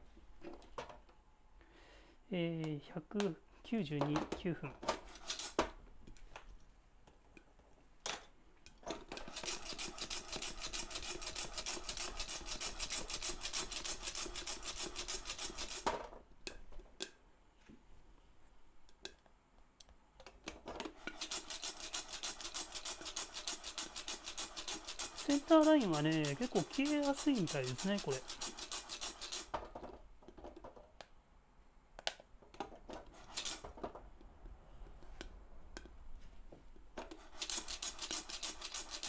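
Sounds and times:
coffee beans rattling in saucepan: 21.1s - 29.5s.

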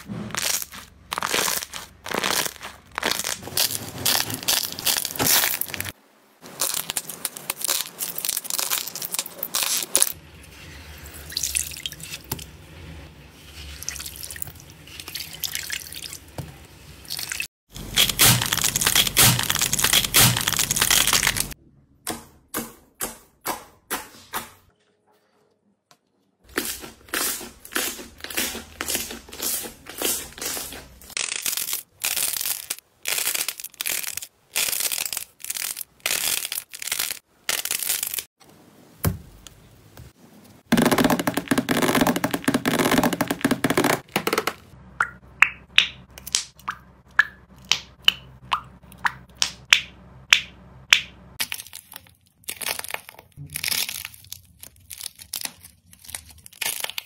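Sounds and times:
slime squishing by hand: 0.0s - 10.2s.

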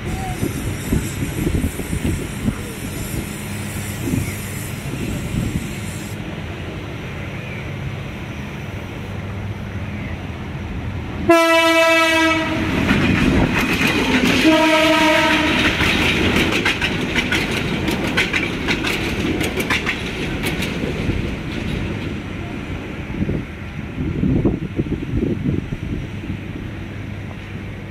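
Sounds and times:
train coaches rumbling: 0.0s - 27.9s
train horn blasts: 11.3s - 12.8s, 14.4s - 15.8s
wheels clicking over rail joints: 12.7s - 22.4s.

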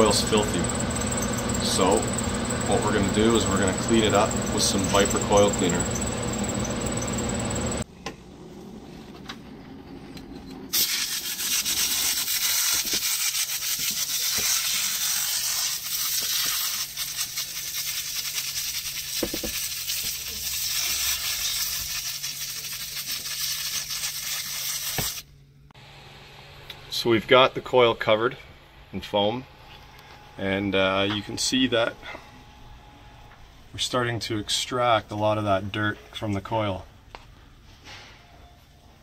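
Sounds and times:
aerosol can spraying hiss: 10.8s - 25.2s.

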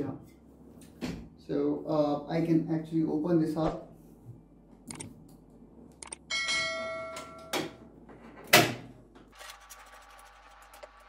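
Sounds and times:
metallic ring: 6.3s - 7.7s.

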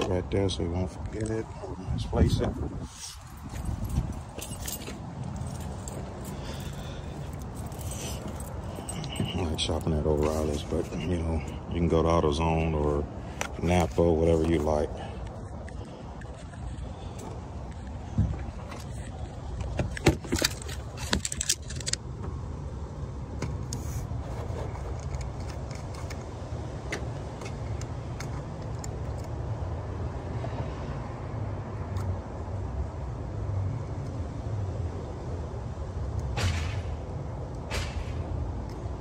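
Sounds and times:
rubbing and wind on microphone: 0.8s - 6.3s, 13.1s - 21.8s, 23.6s - 26.4s.

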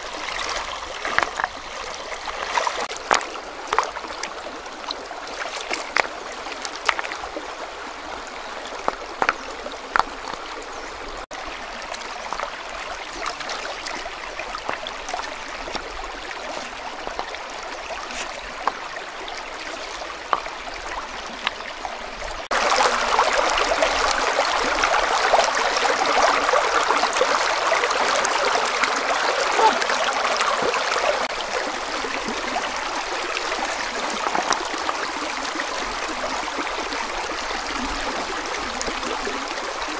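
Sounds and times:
river running over rocks: 0.0s - 39.9s
stones knocking in water: 1.0s - 1.5s, 2.4s - 4.3s, 5.3s - 7.2s, 8.7s - 10.4s, 34.2s - 34.6s.

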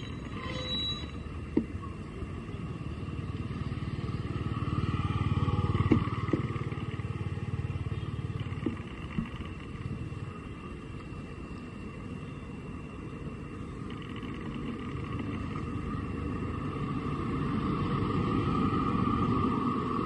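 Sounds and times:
motor engine running: 2.4s - 11.4s.

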